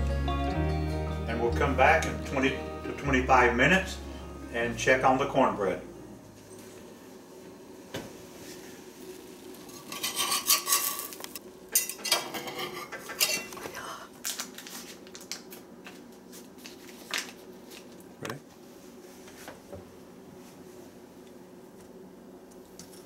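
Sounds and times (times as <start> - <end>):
metal utensil scraping skillet: 9.7 - 11.2.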